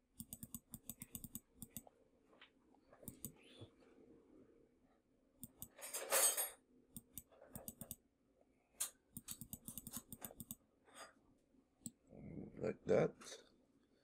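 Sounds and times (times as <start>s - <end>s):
computer mouse clicks: 0.2s - 1.9s, 3.0s - 3.5s, 5.4s - 5.8s, 7.0s - 8.0s, 8.8s - 10.6s
keyboard keystrokes: 9.2s - 10.6s.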